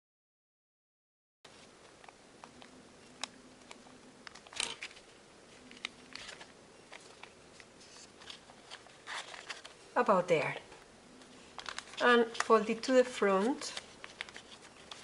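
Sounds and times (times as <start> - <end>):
paper being folded by hand: 1.5 - 9.8, 11.3 - 15.0.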